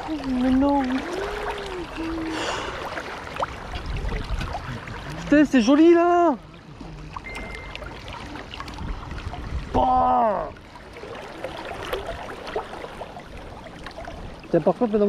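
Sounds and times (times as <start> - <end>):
person vocalizing: 0.9 - 2.8.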